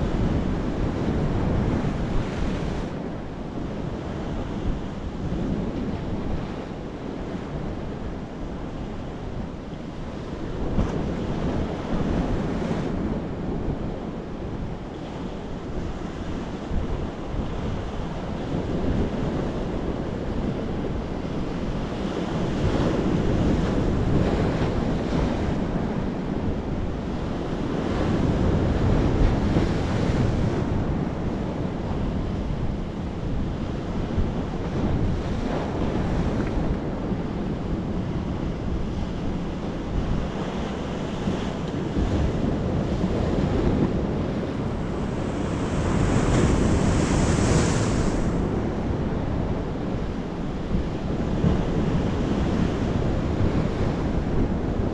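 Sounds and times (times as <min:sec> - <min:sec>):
wind buffeting microphone: 0:00.0 - 0:54.9
waves crashing with hissing spray: 0:22.4 - 0:54.9.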